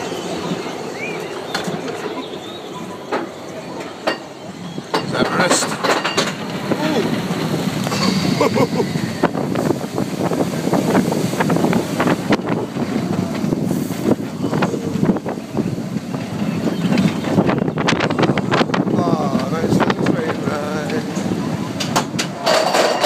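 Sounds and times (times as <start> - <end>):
roller coaster rattling on track: 0.0 - 23.0
wind buffeting microphone: 4.4 - 22.7.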